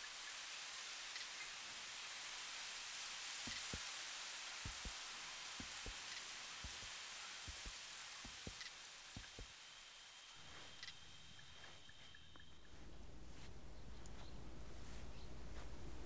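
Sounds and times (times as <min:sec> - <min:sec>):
steady hiss: 0:00.0 - 0:16.0
heartbeat thumps: 0:04.7 - 0:05.0, 0:07.5 - 0:08.6.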